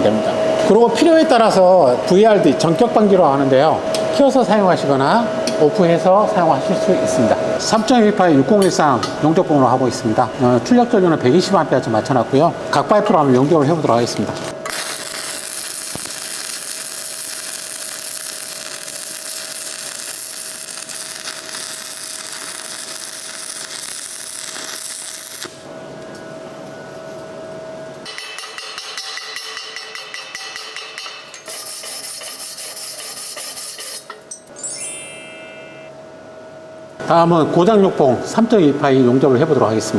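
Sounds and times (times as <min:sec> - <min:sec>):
arc welding crackling hiss: 0:14.6 - 0:25.7.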